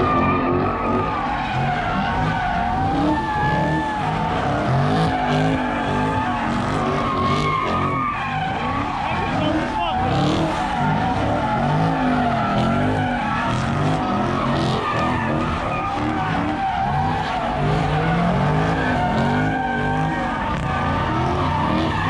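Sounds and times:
car engines revving: 0:00.0 - 0:22.0
tyres squealing on asphalt: 0:00.0 - 0:22.0.

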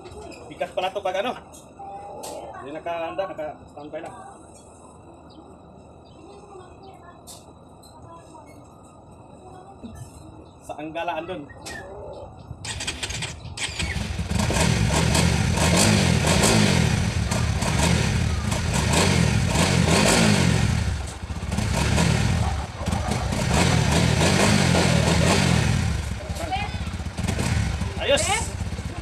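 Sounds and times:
motorcycle engine revving: 0:12.6 - 0:29.0.

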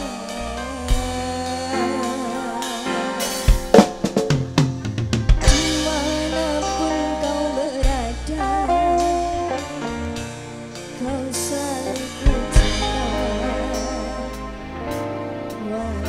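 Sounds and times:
live band playing: 0:00.0 - 0:16.0
vibrato lead melody: 0:00.0 - 0:16.0
drum fill: 0:02.0 - 0:08.1.

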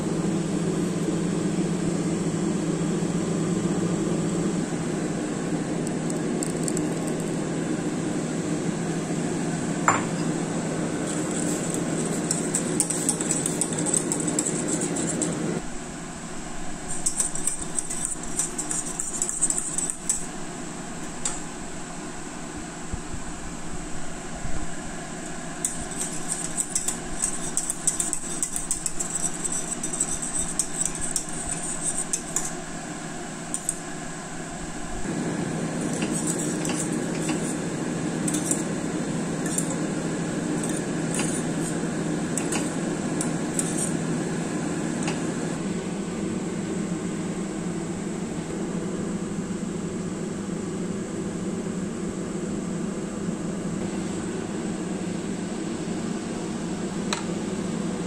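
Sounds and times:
steady hum: 0:00.0 - 0:58.0
whisk scraping a steel pot: 0:10.9 - 0:15.6, 0:16.9 - 0:20.4, 0:25.6 - 0:33.8, 0:35.8 - 0:38.7, 0:39.4 - 0:39.9, 0:40.5 - 0:44.1.

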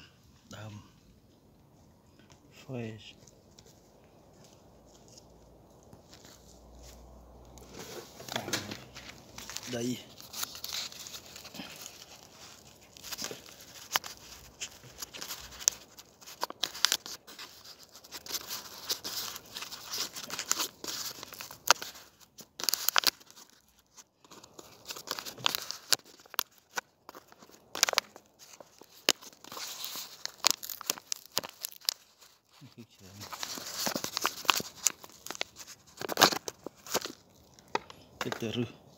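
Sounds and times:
hands crunching dry soil: 0:02.2 - 0:38.8.

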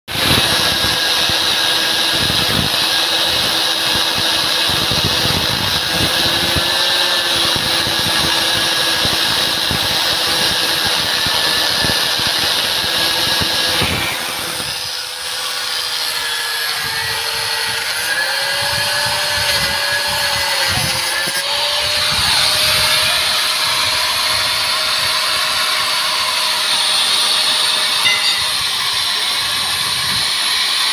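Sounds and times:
angle grinder cutting steel: 0:00.1 - 0:30.9.

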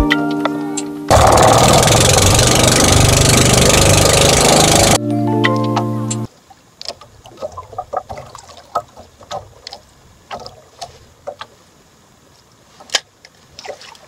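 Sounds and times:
waves slapping against boat hull: 0:06.8 - 0:11.6.

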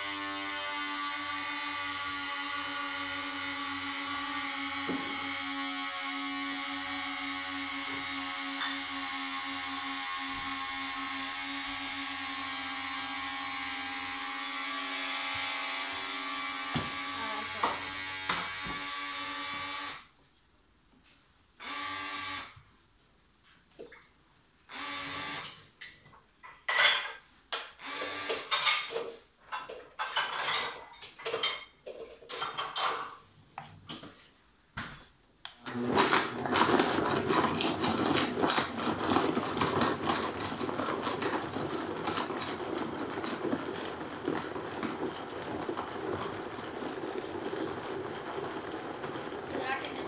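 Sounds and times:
blender motor running: 0:00.0 - 0:20.1, 0:21.6 - 0:22.6, 0:24.7 - 0:25.7, 0:27.8 - 0:28.7, 0:35.5 - 0:50.0
blender jar knocking and clattering: 0:07.9 - 0:09.0, 0:16.7 - 0:18.9, 0:35.6 - 0:50.0.

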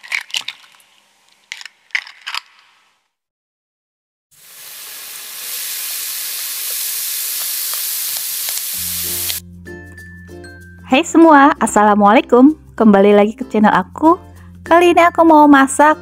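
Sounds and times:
food sizzling in hot oil: 0:04.3 - 0:09.4.

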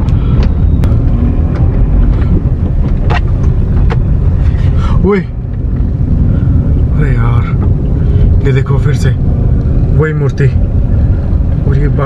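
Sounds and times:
sharp clicks and knocks: 0:00.0 - 0:04.4
car engine and tyre rumble: 0:00.0 - 0:12.0.

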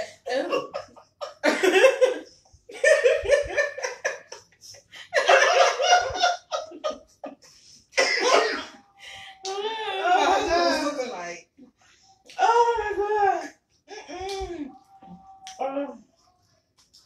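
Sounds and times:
women laughing hard: 0:00.3 - 0:07.6.

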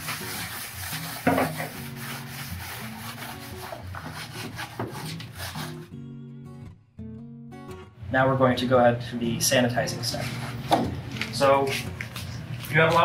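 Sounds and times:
sponge scrubbing plastic: 0:00.0 - 0:05.8
soft acoustic guitar music: 0:00.0 - 0:13.0.

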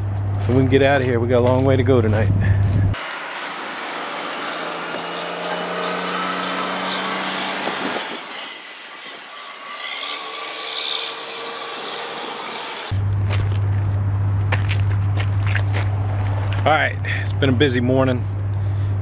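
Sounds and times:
faint engine hum: 0:00.0 - 0:03.2, 0:11.8 - 0:19.0.

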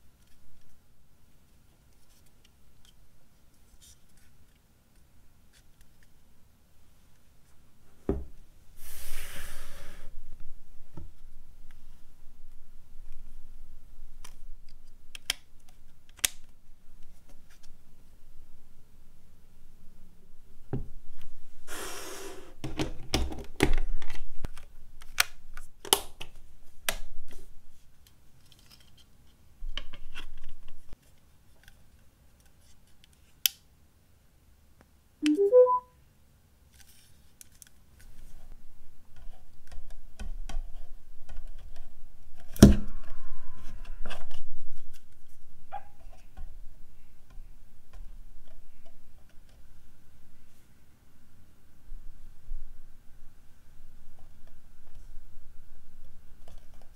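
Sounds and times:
rising three-note chime: 0:35.2 - 0:35.9.

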